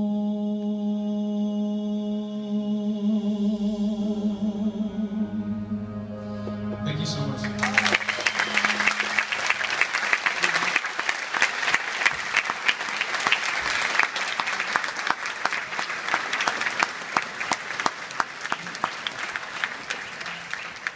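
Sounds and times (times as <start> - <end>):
held note of a song: 5.3 - 9.4
audience applauding: 7.4 - 20.9.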